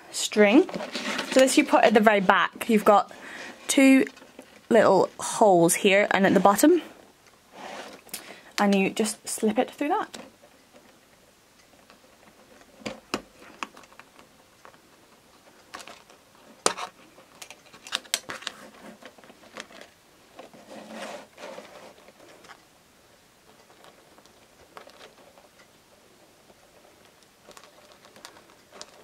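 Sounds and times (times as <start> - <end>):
plastic rustle: 0.1 - 5.4, 11.8 - 22.7, 23.5 - 25.6, 26.4 - 29.0.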